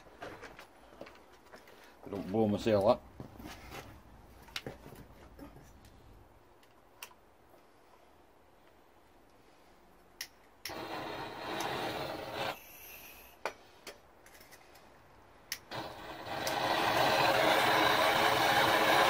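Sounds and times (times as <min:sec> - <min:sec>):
blowtorch igniter clicks: 0:10.2 - 0:11.8, 0:16.4 - 0:16.6
gas hissing: 0:10.6 - 0:13.5, 0:15.6 - 0:19.0
blowtorch burning with a hiss: 0:10.7 - 0:13.4, 0:15.7 - 0:19.0.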